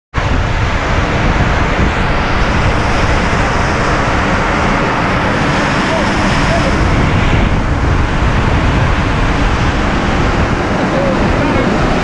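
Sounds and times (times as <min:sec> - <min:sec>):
water rushing over rocks: 0:00.1 - 0:12.0.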